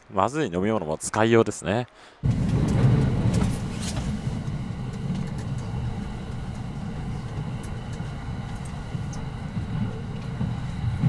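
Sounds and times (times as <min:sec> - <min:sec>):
train rumble: 0:02.2 - 0:11.0
faint high whine: 0:02.3 - 0:11.0
faint clicks: 0:02.4 - 0:11.0.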